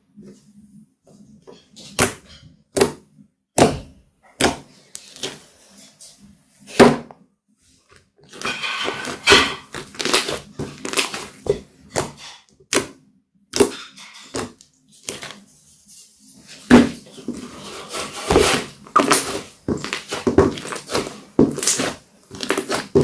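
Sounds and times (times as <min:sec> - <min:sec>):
slime squishing: 0:01.8 - 0:05.9, 0:07.8 - 0:23.0.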